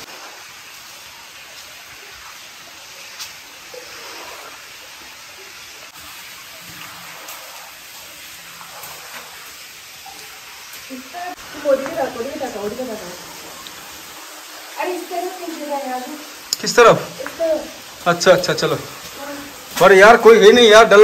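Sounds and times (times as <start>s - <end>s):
running water hiss: 0.0s - 21.0s.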